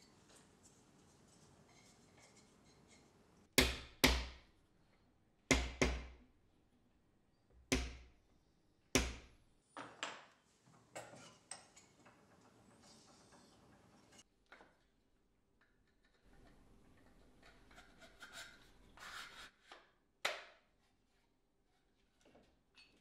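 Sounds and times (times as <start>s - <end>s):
hammer knocking wooden block: 3.6s - 4.4s.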